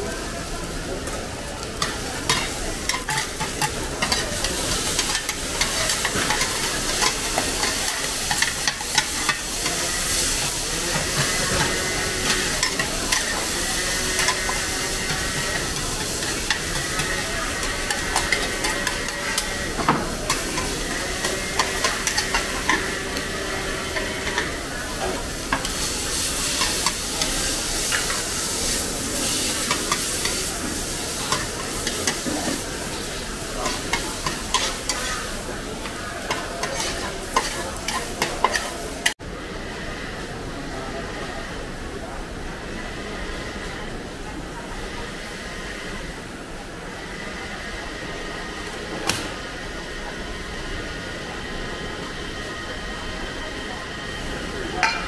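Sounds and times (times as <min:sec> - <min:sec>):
omelette sizzling on wok: 0:00.0 - 0:39.2
metal spatulas scraping pan: 0:36.2 - 0:38.7.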